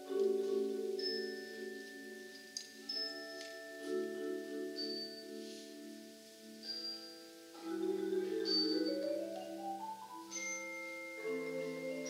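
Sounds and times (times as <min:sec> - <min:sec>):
marimba ensemble chords: 0:07.2 - 0:12.0.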